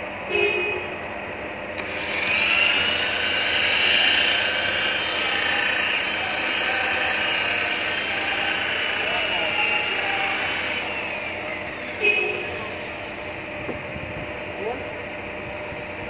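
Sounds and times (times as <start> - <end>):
polisher motor whining: 1.8 - 13.8.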